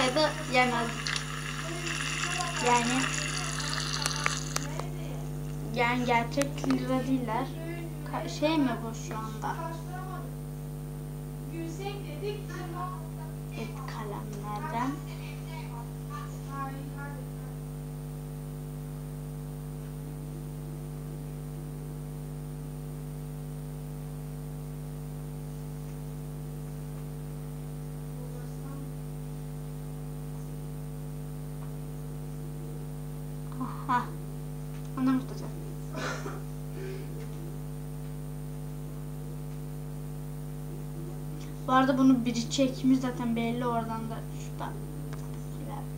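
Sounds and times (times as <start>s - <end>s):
person speaking: 0.0s - 9.6s
electrical hum: 0.0s - 45.9s.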